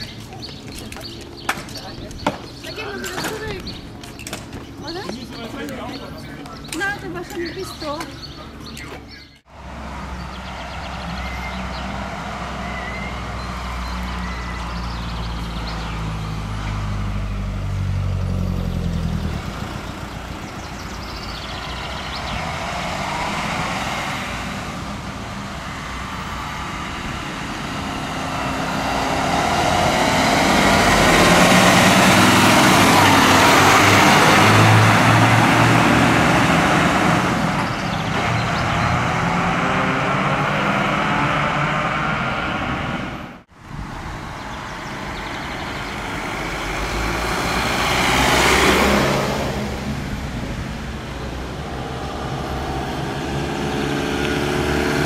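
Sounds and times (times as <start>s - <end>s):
fire trucks driving past: 0.0s - 55.0s.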